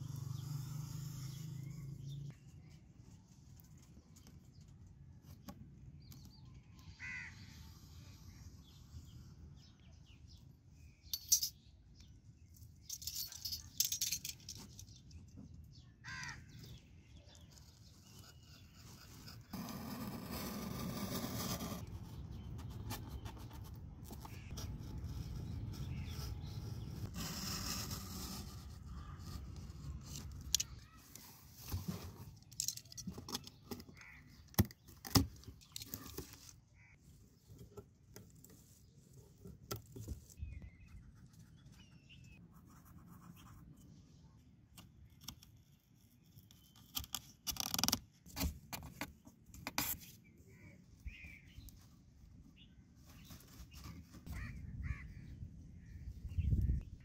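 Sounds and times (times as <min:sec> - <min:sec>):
faint bird calls: 0:06.3 - 0:09.0, 0:53.2 - 0:56.8
marker scratching on cardboard: 0:40.8 - 0:43.8.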